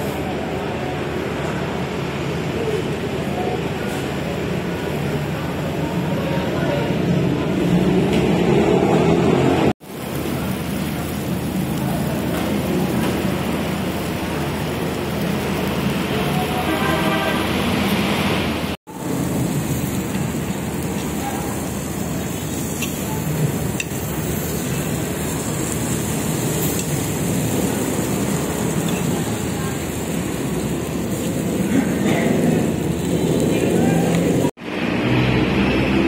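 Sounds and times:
restaurant chatter: 0.0s - 34.6s
meat sizzling on a hot plate: 9.8s - 18.0s, 18.9s - 34.5s
restaurant clatter: 30.8s - 34.4s.

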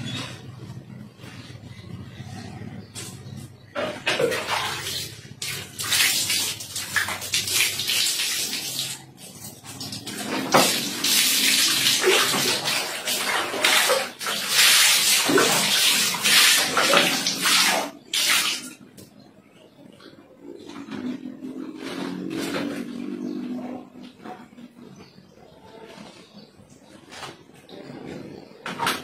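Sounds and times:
water splashing on tiled floor: 3.9s - 25.2s.

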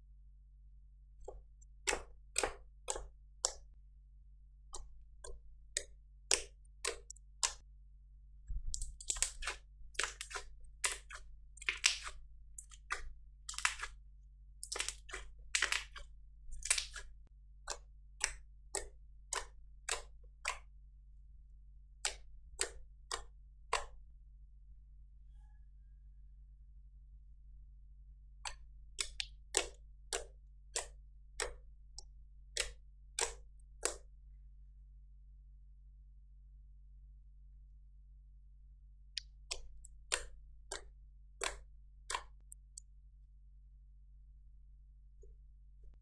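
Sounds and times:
slime squelching and popping: 4.8s - 7.6s, 8.5s - 14.0s, 14.6s - 20.7s, 28.5s - 31.6s.

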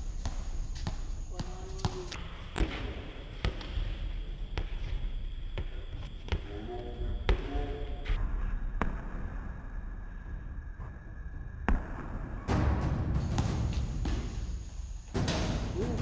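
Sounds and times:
basketball bouncing on hard court: 0.1s - 4.0s, 11.7s - 14.6s.

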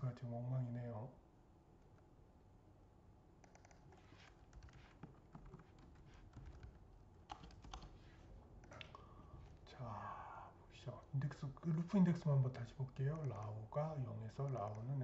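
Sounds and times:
faint keyboard typing: 3.4s - 9.7s, 10.8s - 15.0s.

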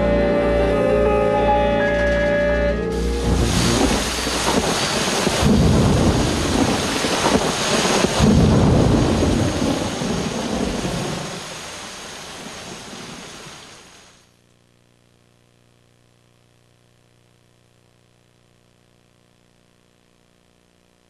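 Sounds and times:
rain falling: 1.9s - 14.3s
rolls of thunder: 3.3s - 11.5s.

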